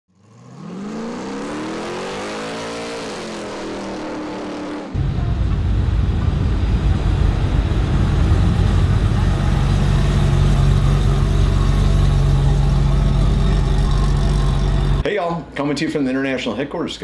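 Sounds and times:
car engine revving: 0:00.1 - 0:15.0
deep steady engine rumble: 0:05.0 - 0:15.0.

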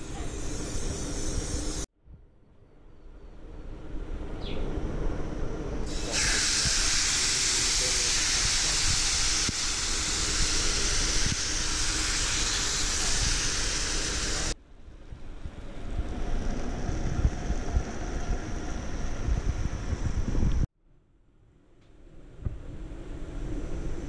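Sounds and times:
meat sizzling in frying pan: 0:05.9 - 0:14.5.

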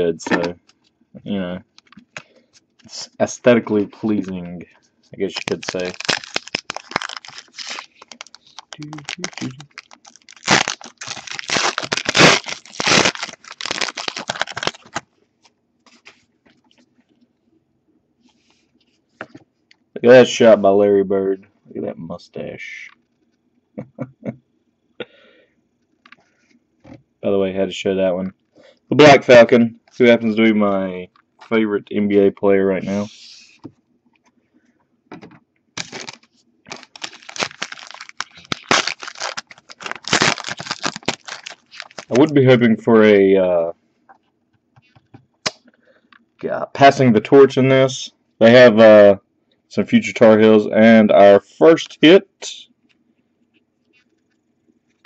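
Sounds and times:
cards rustling: 0:05.2 - 0:15.0, 0:35.8 - 0:42.3
foil wrapper crinkling and tearing: 0:05.2 - 0:15.0, 0:35.8 - 0:42.3.

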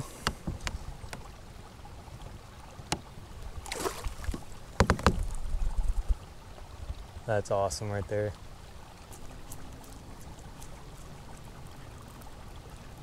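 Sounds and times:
knocks against a kayak: 0:00.0 - 0:01.2, 0:04.2 - 0:05.4
water splashing: 0:00.0 - 0:13.0
low underwater rumble: 0:02.4 - 0:06.3.

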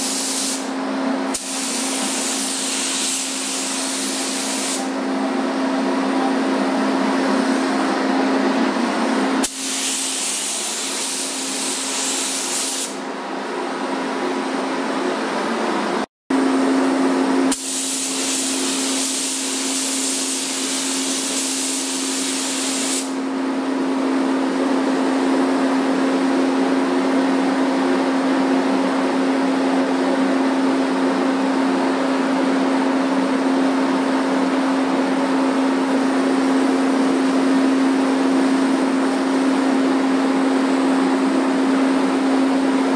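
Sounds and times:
spray gun hissing: 0:00.0 - 0:00.7, 0:01.3 - 0:04.9, 0:09.4 - 0:13.0, 0:17.5 - 0:23.2
ventilation fan hum: 0:00.0 - 0:42.9.

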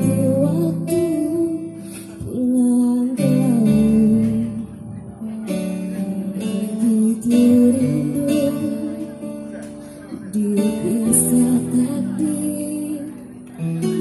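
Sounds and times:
amplified guitar: 0:00.0 - 0:14.0
woman singing into microphone: 0:00.0 - 0:14.0.

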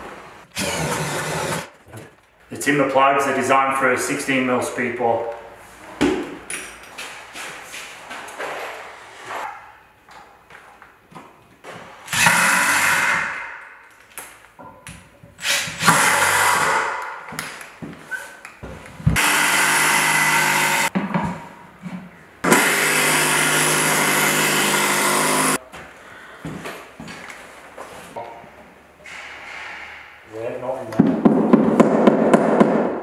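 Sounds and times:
cordless drill boring into wood: 0:00.6 - 0:01.7, 0:12.1 - 0:13.4, 0:15.8 - 0:16.9, 0:19.2 - 0:20.9, 0:22.5 - 0:25.6.

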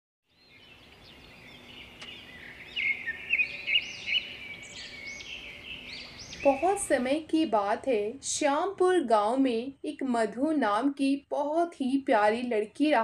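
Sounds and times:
birds chirping and twittering: 0:00.3 - 0:07.1.

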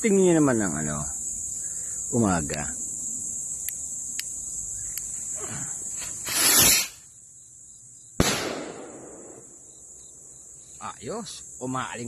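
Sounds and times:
crickets chirping: 0:00.0 - 0:12.0
bottle rocket hissing whoosh: 0:05.4 - 0:07.0
sharp echoing bang: 0:08.2 - 0:09.5.

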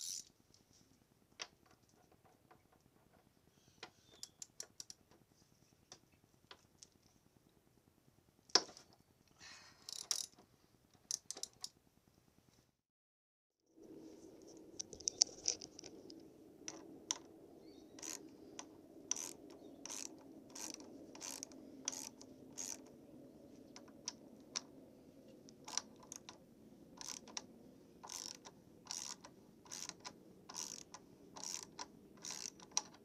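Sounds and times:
ratchet wrench clicking: 0:00.0 - 0:00.3, 0:09.9 - 0:10.3, 0:18.0 - 0:18.2, 0:19.1 - 0:22.8, 0:27.0 - 0:27.4, 0:28.0 - 0:33.0.

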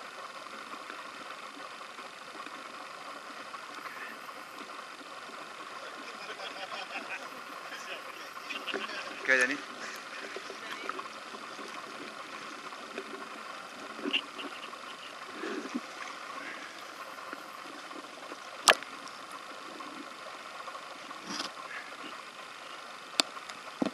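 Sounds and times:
swimming pool hall hiss: 0:00.0 - 0:23.8.

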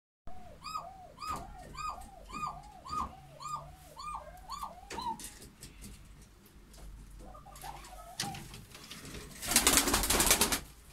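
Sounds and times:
dove cooing: 0:00.3 - 0:05.4, 0:07.3 - 0:08.5.

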